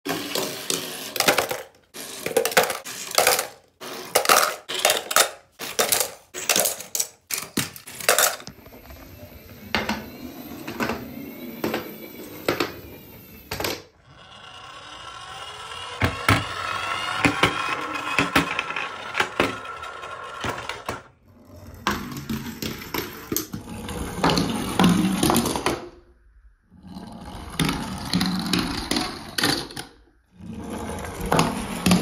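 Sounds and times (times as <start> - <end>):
toy cars clattering down slide: 0.1 - 8.6, 14.8 - 21.1.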